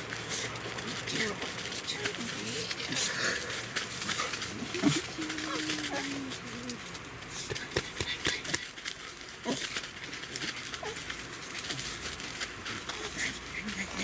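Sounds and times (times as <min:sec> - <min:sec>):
dogs scrabbling on mat: 0:00.0 - 0:14.0
dogs whining: 0:04.0 - 0:06.9, 0:10.4 - 0:11.1.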